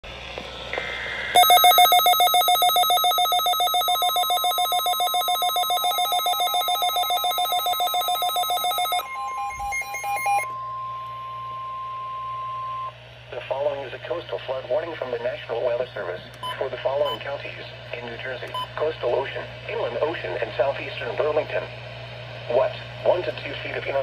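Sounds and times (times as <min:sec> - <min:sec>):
steady alarm tone: 0:01.1 - 0:13.0
pulsing multi-tone beeping: 0:01.4 - 0:12.9.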